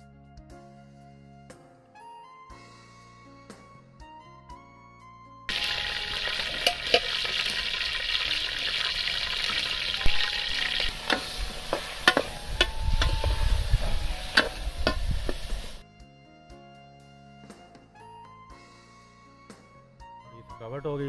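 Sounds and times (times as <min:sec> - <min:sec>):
vegetables sizzling in hot oil: 0:05.5 - 0:15.8
metal ladle scraping a pot: 0:05.6 - 0:15.8.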